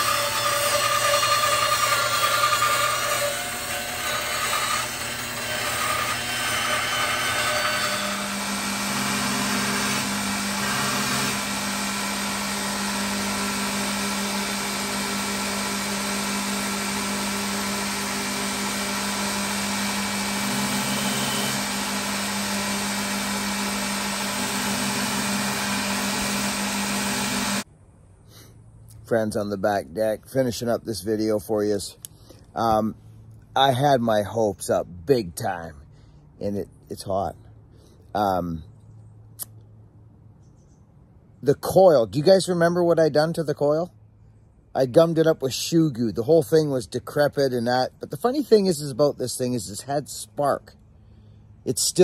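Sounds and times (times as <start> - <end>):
bandsaw cutting wood: 0.0 - 27.6
belt grinder humming: 0.0 - 27.6.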